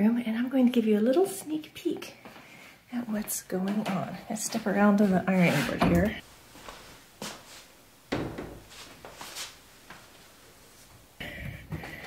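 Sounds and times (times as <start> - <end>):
footsteps: 2.0 - 11.0
closet door clicks and taps: 8.1 - 8.6
knock on door: 8.1 - 8.6.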